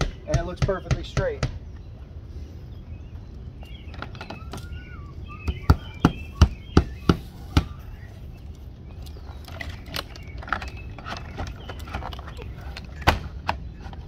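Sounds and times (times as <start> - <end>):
siding clicking: 3.6 - 14.0.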